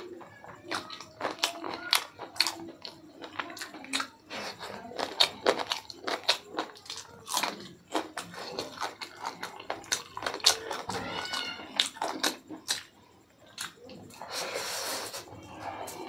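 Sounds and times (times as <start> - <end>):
wet chewing and lip-smacking: 0.0 - 14.4.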